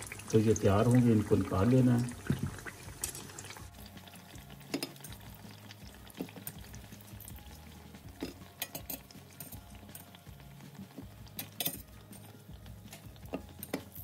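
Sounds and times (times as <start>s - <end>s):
food sizzling in hot oil: 0.0s - 14.0s
metal tongs clicking against pan: 3.0s - 3.3s, 4.7s - 5.2s, 8.2s - 10.2s, 11.2s - 14.0s.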